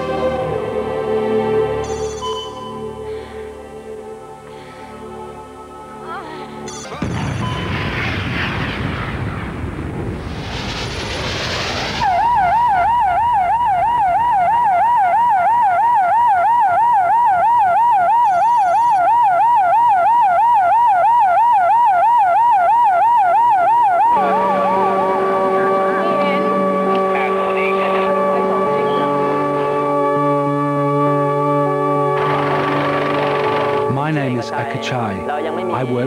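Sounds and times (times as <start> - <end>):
rushing noise: 7.0 - 15.0
emergency siren yelping: 11.9 - 33.9
steady multi-tone sound: 23.9 - 36.0.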